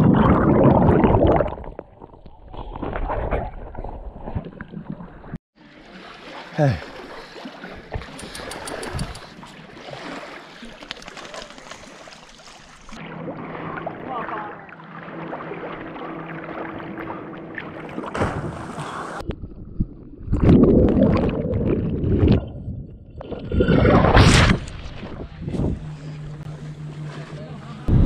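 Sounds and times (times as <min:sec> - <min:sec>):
muffled underwater rushing and bubbling: 0:00.0 - 0:05.9, 0:11.6 - 0:28.0
wind: 0:00.0 - 0:28.0
river water: 0:05.6 - 0:19.3, 0:24.1 - 0:28.0.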